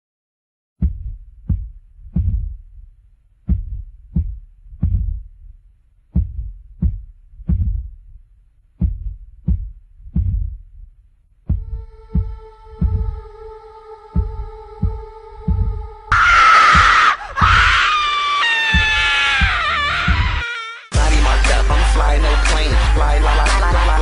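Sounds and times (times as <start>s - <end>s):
deep bass drum hits: 0.8s - 2.6s.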